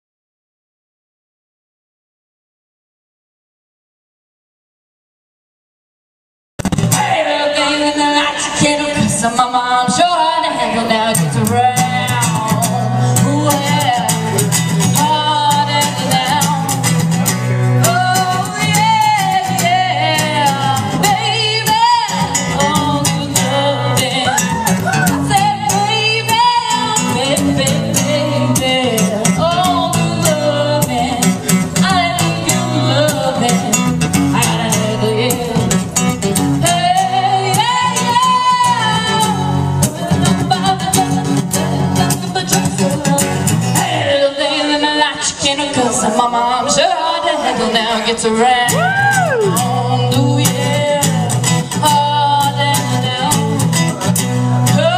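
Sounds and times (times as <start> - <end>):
instrumental accompaniment with bass: 6.6 - 7.2, 11.0 - 44.2, 48.7 - 54.9
person singing: 6.9 - 17.0, 17.8 - 35.9, 36.6 - 54.0.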